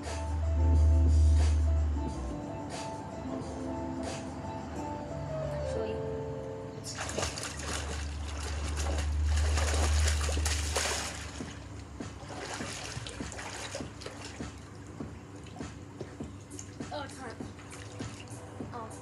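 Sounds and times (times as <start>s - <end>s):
pool water splashing: 6.8s - 18.9s
low rumble: 7.0s - 13.4s.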